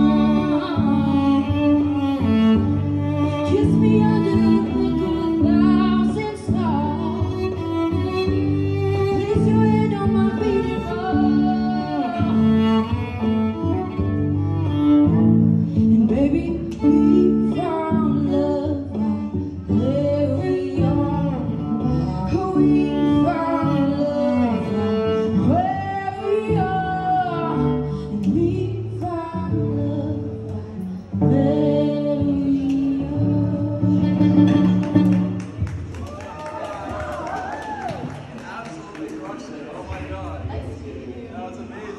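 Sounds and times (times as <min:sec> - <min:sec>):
woman singing into microphone: 0:00.0 - 0:01.8, 0:03.1 - 0:07.8, 0:08.9 - 0:12.8, 0:15.8 - 0:35.3
bowed cello low notes: 0:00.0 - 0:36.0.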